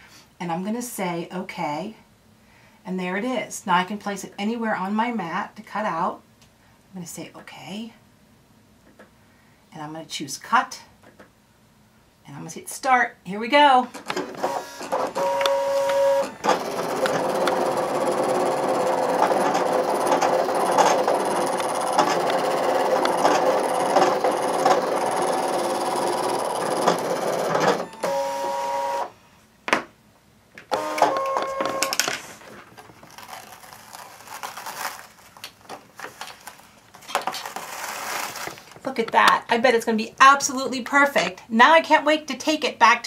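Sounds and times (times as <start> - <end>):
cutting machine motors whirring: 14.4 - 29.1, 30.7 - 32.0.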